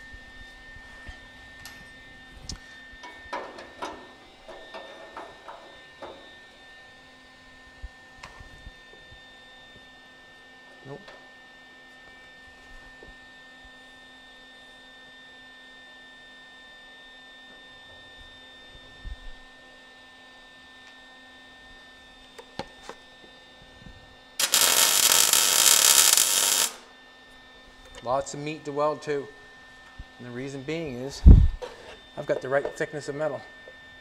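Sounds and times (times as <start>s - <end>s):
welder arc buzzing: 24.4s - 26.9s.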